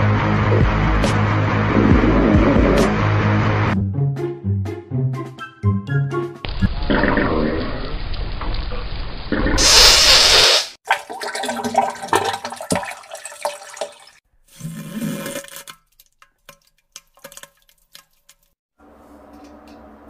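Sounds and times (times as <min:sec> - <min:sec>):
water gurgling and splashing: 0:06.5 - 0:15.8
toilet water gushing: 0:06.6 - 0:08.6, 0:09.3 - 0:15.8.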